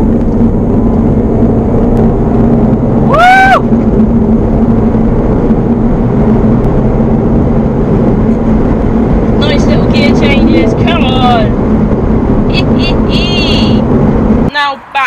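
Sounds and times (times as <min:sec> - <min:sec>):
car road and engine drone: 0:00.0 - 0:15.0
short rising whoop: 0:03.0 - 0:03.9.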